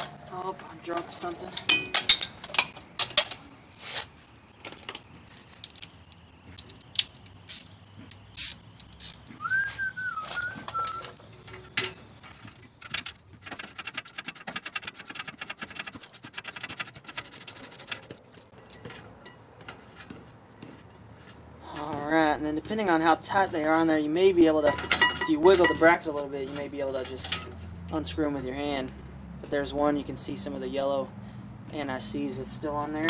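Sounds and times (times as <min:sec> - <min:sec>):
metal tools clinking: 0:00.0 - 0:03.4, 0:10.3 - 0:13.6, 0:17.7 - 0:19.8, 0:24.5 - 0:27.8
whistled bird call: 0:09.4 - 0:11.2.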